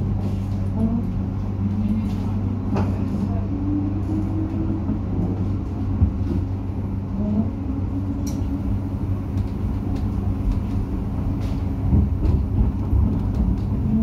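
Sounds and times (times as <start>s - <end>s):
constant hum: 0.0s - 14.0s
tram wheels rumbling on rail: 0.0s - 14.0s.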